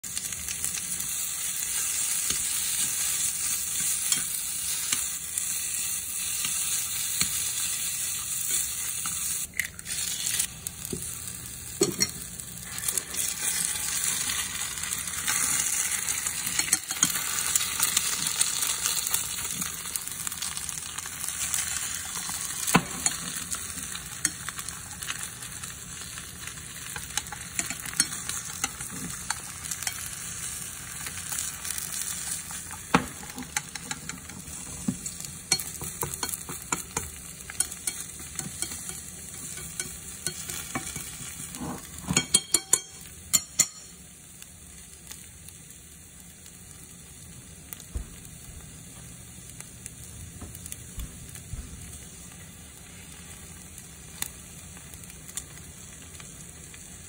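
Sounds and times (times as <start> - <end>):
onions and egg sizzling in pan: 0.0 - 57.0
chopsticks stirring egg: 26.4 - 30.7, 32.0 - 43.8.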